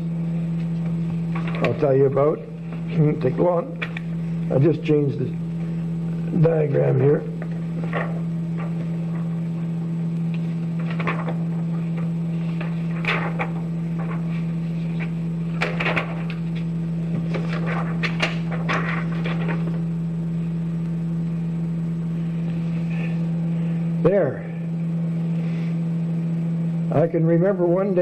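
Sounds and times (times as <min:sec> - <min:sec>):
overhead projector humming: 0:00.0 - 0:28.0
transparency sheets rustling: 0:07.7 - 0:09.7, 0:10.4 - 0:20.0.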